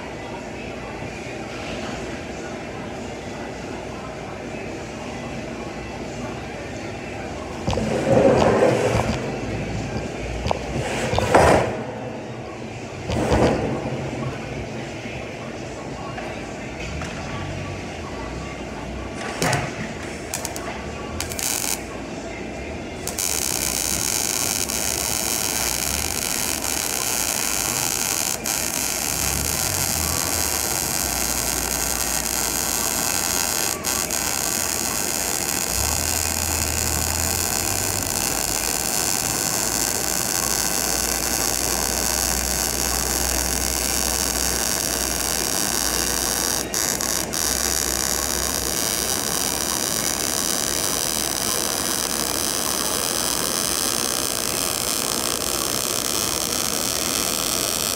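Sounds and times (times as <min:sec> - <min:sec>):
welding arc hissing: 0:20.3 - 0:21.9, 0:23.0 - 0:57.9.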